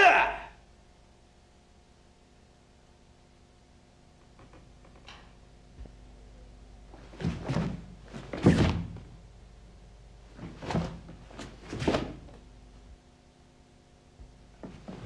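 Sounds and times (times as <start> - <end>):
bare feet thudding on floor: 7.0 - 9.1
uniform swishes and snaps: 10.4 - 12.4.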